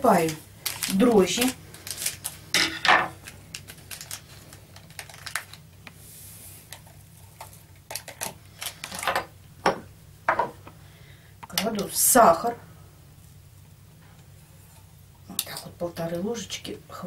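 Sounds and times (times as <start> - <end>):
paper sachet crinkling: 0.0 - 2.5, 3.1 - 5.7, 6.7 - 9.0.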